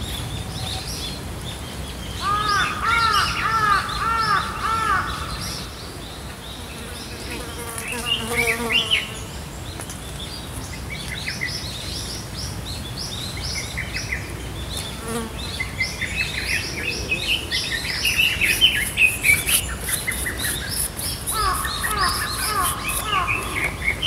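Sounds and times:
birds chirping: 0:13.6 - 0:24.0
high insect buzz: 0:18.0 - 0:23.8.

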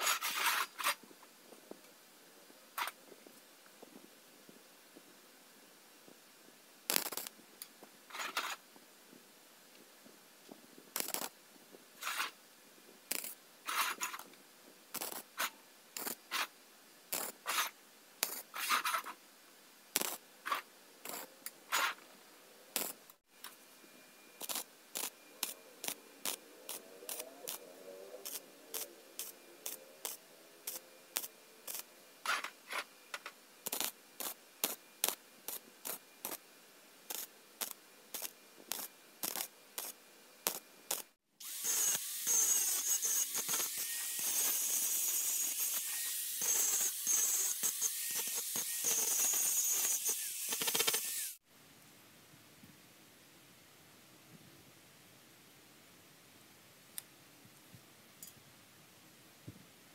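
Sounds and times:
arc welding crackling: 0:06.9 - 0:08.5, 0:10.9 - 0:11.4, 0:13.1 - 0:14.2, 0:14.9 - 0:16.5, 0:17.1 - 0:19.0, 0:20.0 - 0:21.9, 0:22.8 - 0:23.2, 0:24.4 - 0:32.6, 0:33.6 - 0:36.4, 0:37.1 - 0:51.4.

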